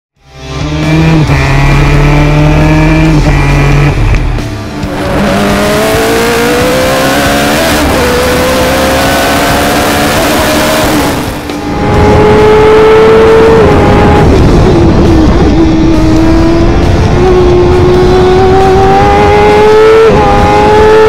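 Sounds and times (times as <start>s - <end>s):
racing engine accelerating: 0.2s - 21.0s.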